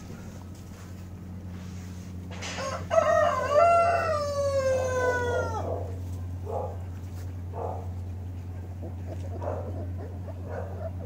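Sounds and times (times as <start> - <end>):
steady low hum: 0.0 - 11.0
rooster crowing: 2.4 - 6.0.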